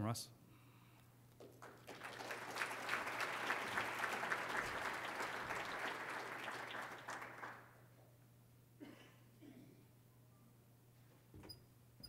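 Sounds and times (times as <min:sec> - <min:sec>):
audience applauding: 0:01.4 - 0:07.8.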